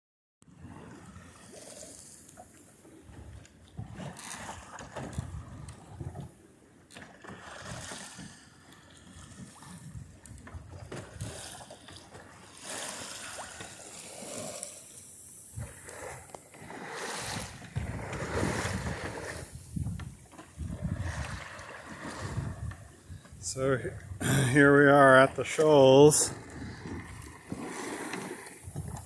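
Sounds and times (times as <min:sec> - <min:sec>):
water rushing along a boat hull: 0:00.4 - 0:29.0
wind buffeting microphone: 0:15.5 - 0:25.5, 0:26.1 - 0:29.0.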